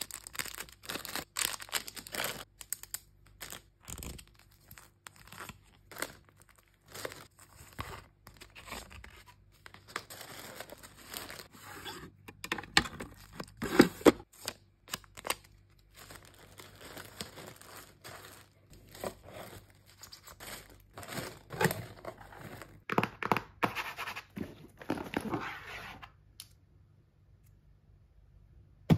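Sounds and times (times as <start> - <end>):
tissue paper crinkling: 4.4 - 11.9, 15.0 - 22.7.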